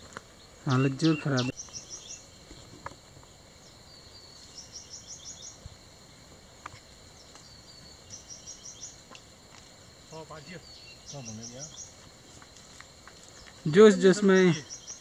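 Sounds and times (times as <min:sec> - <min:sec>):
faint steady hiss: 0:00.0 - 0:15.0
high chirping bird call: 0:00.7 - 0:02.3.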